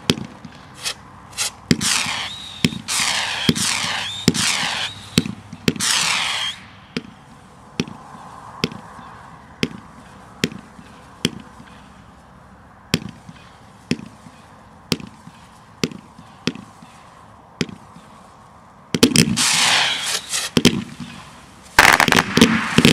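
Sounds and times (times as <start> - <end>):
firework shots popping: 0.0 - 8.0, 18.9 - 22.9
firework hissing rush: 0.8 - 7.6, 19.2 - 22.9.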